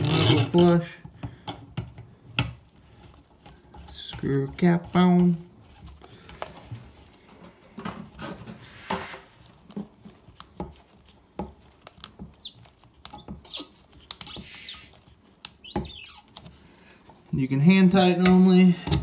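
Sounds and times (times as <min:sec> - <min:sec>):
gloved fingers squeaking on plastic: 0:08.6 - 0:16.6
plastic nut clicking and scraping: 0:09.7 - 0:16.6.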